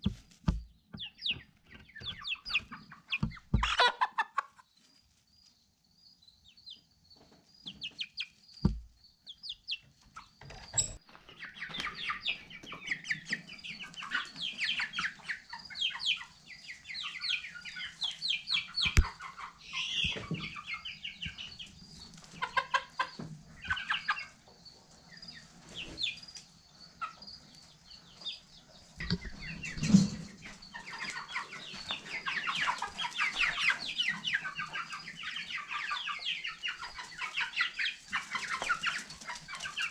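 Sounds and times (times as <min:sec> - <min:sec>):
chickens clucking: 0:00.0 - 0:39.9
sharp knocks: 0:08.6 - 0:08.9.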